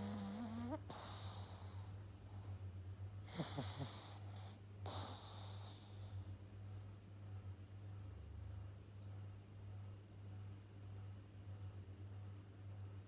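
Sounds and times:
puppy snoring: 0.0 - 2.6, 3.2 - 6.5
noisy breaths: 0.0 - 2.7, 3.3 - 6.4.

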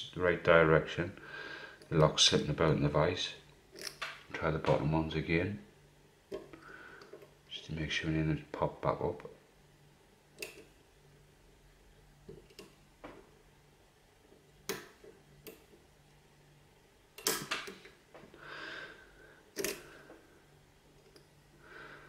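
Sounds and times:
lock pick clicking in padlock: 3.8 - 4.1, 17.2 - 17.8, 19.6 - 19.8.

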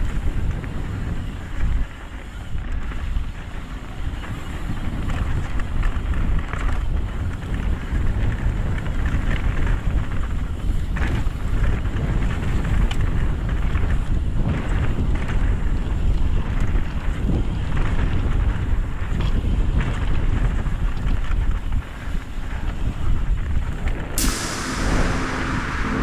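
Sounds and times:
wind rushing over microphone: 21.4 - 26.0.

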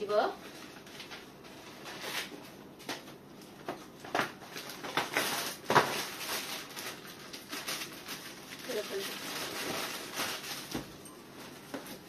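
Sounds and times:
plastic wrappers crinkling: 0.5 - 12.0.

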